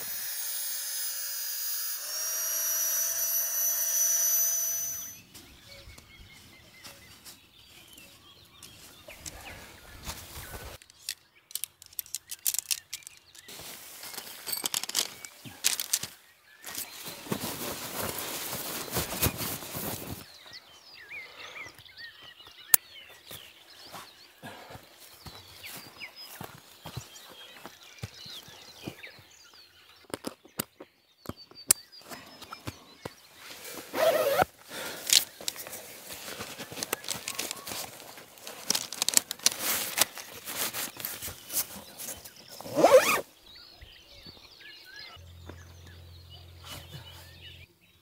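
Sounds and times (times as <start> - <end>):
electric air pump whining: 0.0 - 5.2
tent fabric rustling: 13.5 - 14.6, 16.7 - 20.3, 33.5 - 43.3.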